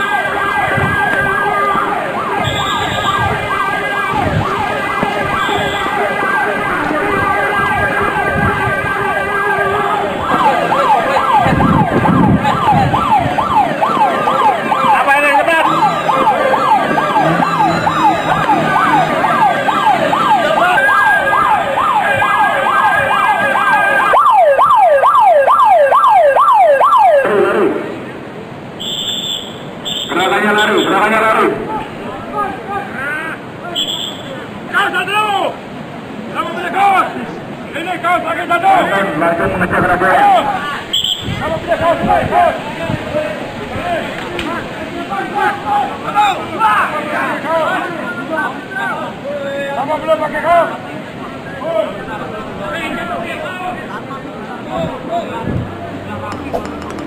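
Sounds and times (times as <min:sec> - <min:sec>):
alarm siren yelping: 0:00.0 - 0:27.3.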